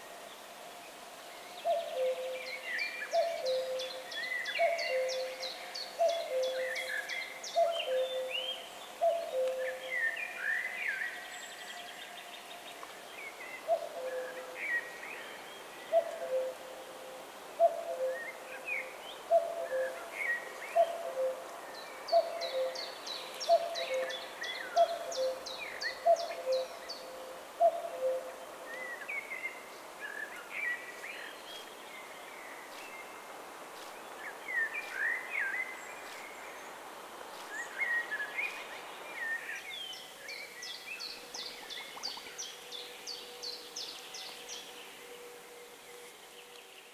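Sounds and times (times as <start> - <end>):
songbirds singing: 0.0 - 46.9.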